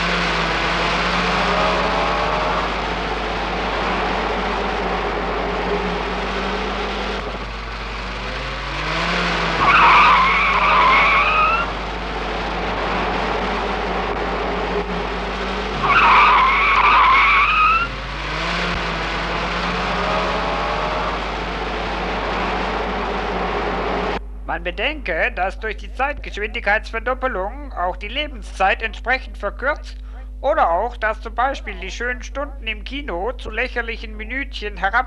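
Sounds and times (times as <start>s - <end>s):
tyres screeching: 0.0s - 24.2s
car engine revving: 0.0s - 24.6s.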